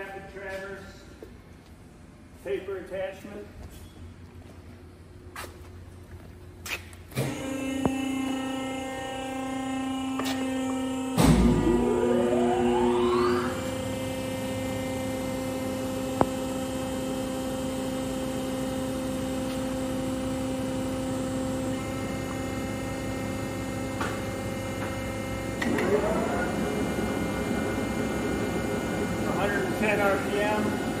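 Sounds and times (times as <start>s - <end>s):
electric motor hum: 7.1s - 31.0s
lathe chuck running roughly: 25.1s - 31.0s.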